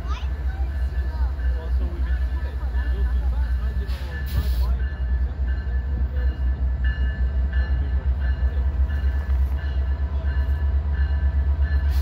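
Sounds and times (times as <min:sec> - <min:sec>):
diesel locomotive rumbling: 0:00.0 - 0:12.0.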